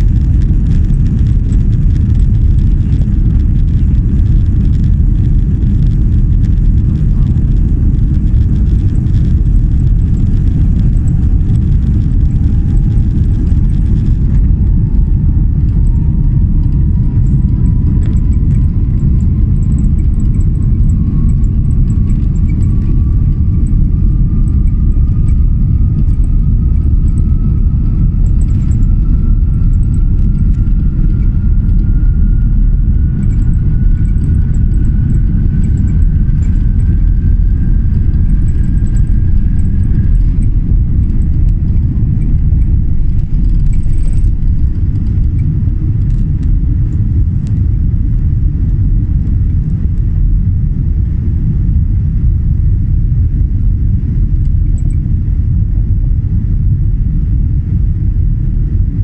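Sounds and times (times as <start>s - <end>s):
wheels on runway: 0.0s - 46.5s
thin rising whine: 0.0s - 52.4s
jet engines rumbling: 0.0s - 55.6s.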